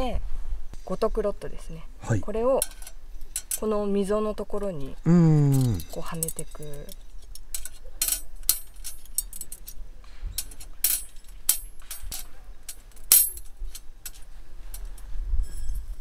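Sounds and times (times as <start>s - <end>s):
metal rods clinking: 4.6s - 16.0s.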